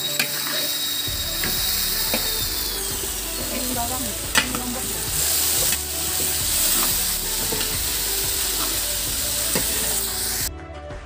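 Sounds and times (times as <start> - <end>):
metal spatula scraping pan: 0.0 - 10.4
food sizzling in a wok: 0.0 - 10.5.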